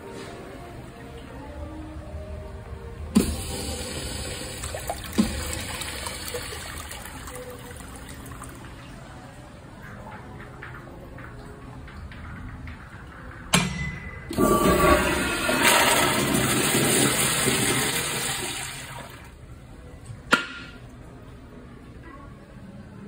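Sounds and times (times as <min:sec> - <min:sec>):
toilet flushing: 0:03.1 - 0:08.9, 0:14.3 - 0:19.4.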